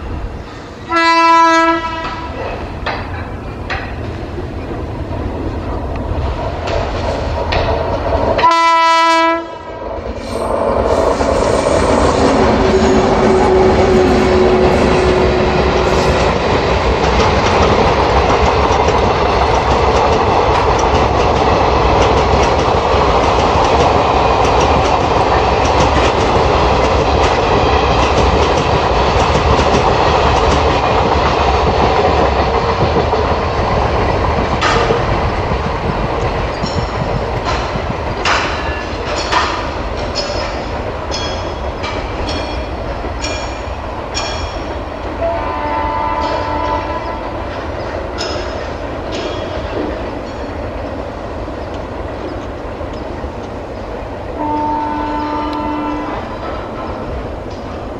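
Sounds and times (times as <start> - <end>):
train wheels rushing on rails: 0.0 - 57.9
locomotive horn: 0.9 - 2.4, 8.4 - 9.8, 11.9 - 16.4, 45.2 - 47.2, 54.4 - 56.3
clickety-clack of coaches: 1.6 - 4.8, 5.5 - 9.1, 12.2 - 57.9.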